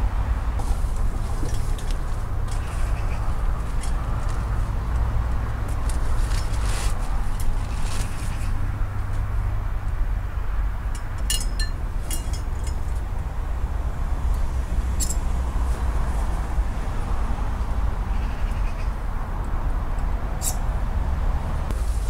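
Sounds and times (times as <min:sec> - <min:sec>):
low road traffic rumble: 0:00.0 - 0:22.0
tent poles clinking: 0:05.7 - 0:08.5, 0:11.0 - 0:13.0, 0:14.4 - 0:15.4, 0:20.4 - 0:20.6.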